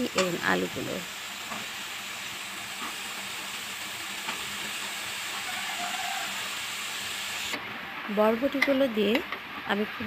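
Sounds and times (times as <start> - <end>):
vegetables sizzling in a pan: 0.0 - 10.0.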